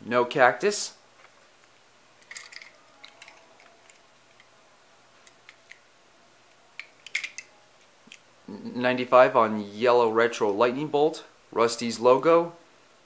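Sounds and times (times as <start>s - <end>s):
toy cars clicking and tapping: 2.2s - 4.5s, 6.8s - 7.5s.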